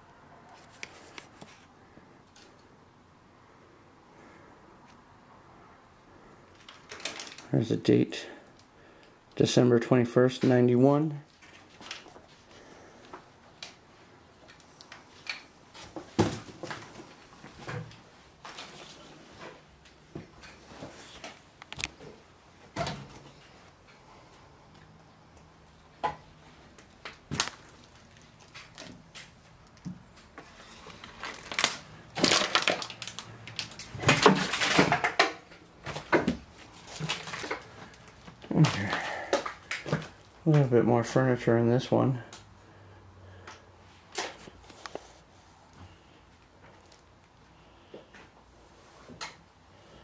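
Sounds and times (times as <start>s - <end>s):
rustling debris: 6.5s - 7.5s, 26.5s - 40.4s
knocks and clicks among debris: 31.3s - 36.4s.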